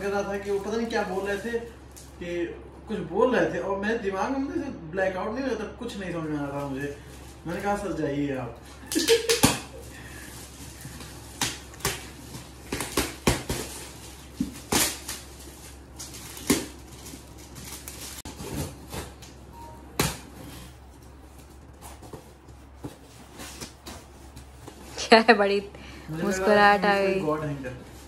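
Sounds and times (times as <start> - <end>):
foil gift wrap tearing: 9.0 - 19.2.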